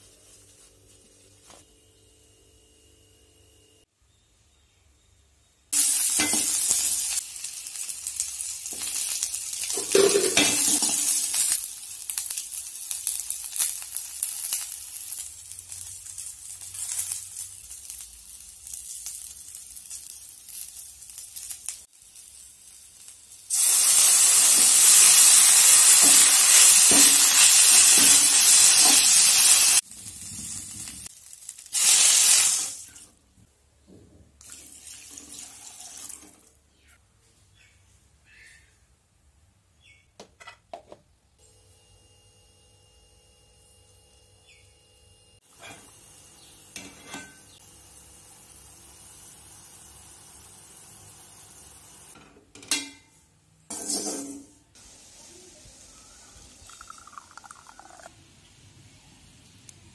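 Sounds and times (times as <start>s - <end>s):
loud sizzle burst: 5.8s - 33.1s, 45.8s - 52.2s, 54.7s - 57.1s
shallots sizzling in hot oil: 5.8s - 33.1s, 45.4s - 52.2s, 53.7s - 58.7s
metal spoon stirring in pan: 53.7s - 54.4s.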